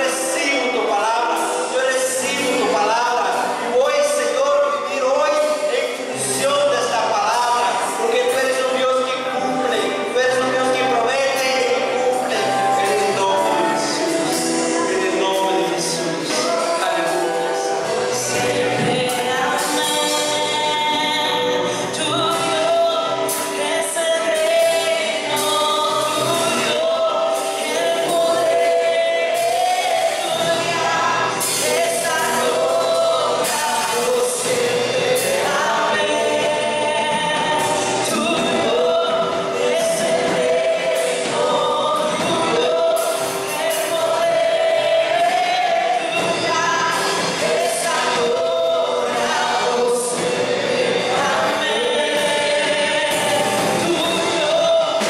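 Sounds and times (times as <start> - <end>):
backing voices singing: 0.0 - 55.0
congas playing a steady beat: 0.0 - 55.0
woman singing lead: 16.3 - 55.0.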